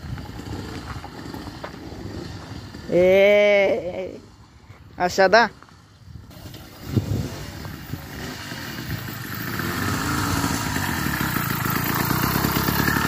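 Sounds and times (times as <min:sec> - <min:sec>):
two-stroke motorized bicycle engine: 0:06.3 - 0:13.0.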